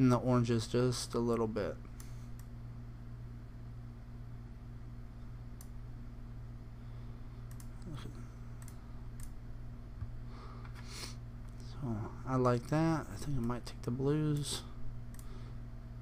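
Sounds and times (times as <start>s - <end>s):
steady low hum: 0.0s - 16.0s
computer mouse clicks: 7.4s - 8.0s, 8.6s - 9.4s, 14.3s - 15.3s.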